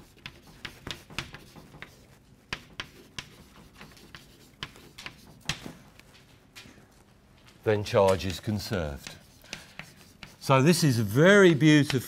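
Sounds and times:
chalk tapping and scratching on blackboard: 0.0s - 6.7s, 8.0s - 10.8s.

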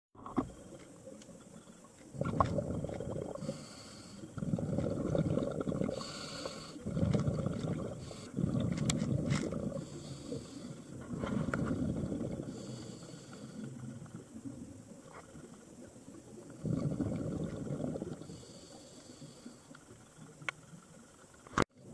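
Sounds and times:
exhaled bubbles rumbling: 0.3s - 18.6s
regulator hiss on inhale: 3.2s - 14.5s, 16.6s - 20.4s.

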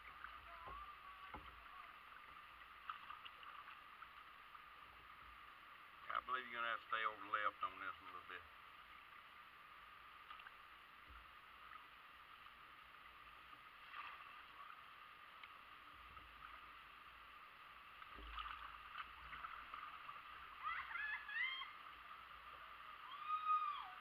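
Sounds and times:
paddle splashes and knocks: 0.0s - 1.8s, 2.8s - 4.2s, 13.8s - 14.7s, 18.0s - 20.3s
creek water running: 0.0s - 24.0s.

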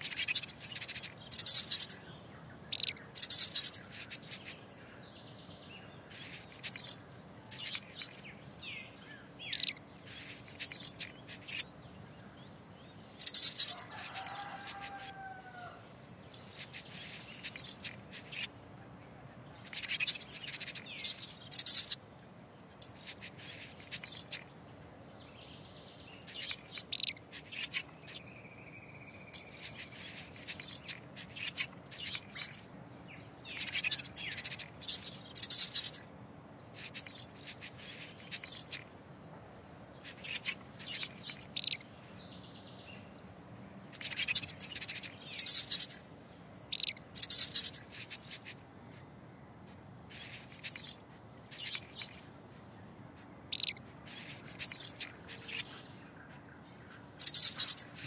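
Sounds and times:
small animals chirping and squeaking: 0.0s - 2.0s, 2.7s - 4.6s, 6.0s - 8.3s, 9.4s - 11.8s, 13.1s - 15.7s, 16.3s - 18.5s, 19.6s - 22.0s, 22.8s - 24.5s, 26.2s - 28.3s, 29.2s - 32.7s, 33.4s - 36.1s, 36.7s - 39.0s, 40.0s - 42.1s, 43.9s - 48.6s, 50.1s - 52.3s, 53.5s - 58.0s.

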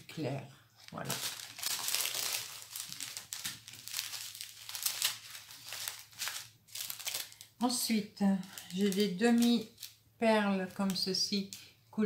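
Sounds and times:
plastic bags crinkling: 0.8s - 10.0s.

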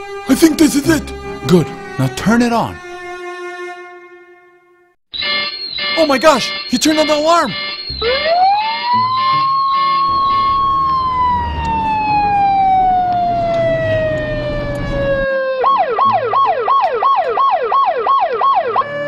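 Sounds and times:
alarm siren wailing and yelping: 5.1s - 19.0s.

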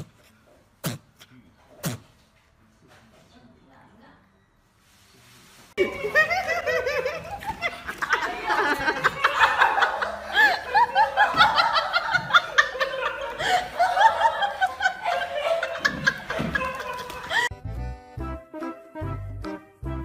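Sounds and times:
people laughing: 5.8s - 17.5s.

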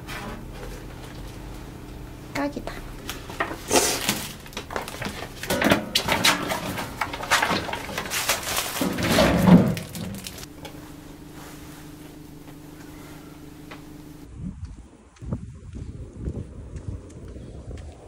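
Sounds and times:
low hum with held tones: 0.0s - 17.7s
clattering knocks: 3.2s - 10.8s.

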